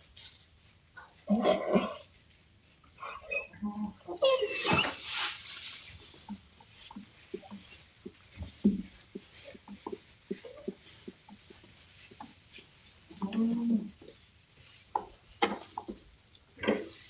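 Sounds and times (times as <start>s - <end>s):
puppies grunting and squeaking: 3.0s - 5.1s.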